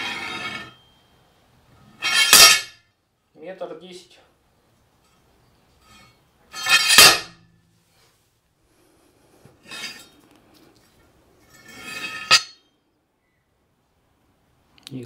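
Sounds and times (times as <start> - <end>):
metal scraping and sliding: 0.0 - 1.0, 1.8 - 2.8, 5.0 - 8.2, 9.6 - 10.4, 11.3 - 12.7
sharp metal clank: 2.0 - 2.8, 6.6 - 7.6, 12.1 - 12.7.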